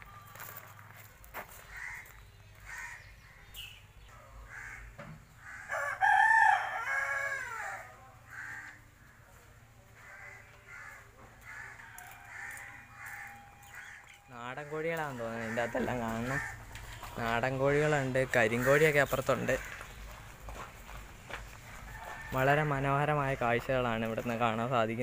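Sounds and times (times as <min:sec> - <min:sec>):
chickens calling: 0:00.0 - 0:24.6
rooster crowing: 0:05.5 - 0:08.8, 0:10.2 - 0:16.6, 0:21.6 - 0:23.5.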